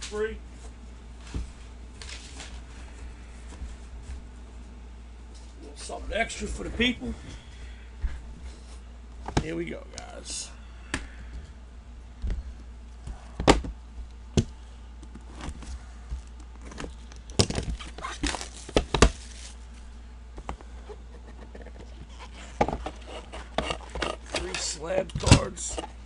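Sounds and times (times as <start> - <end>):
steady low hum: 0.0 - 26.0
cardboard rustling: 17.6 - 19.8.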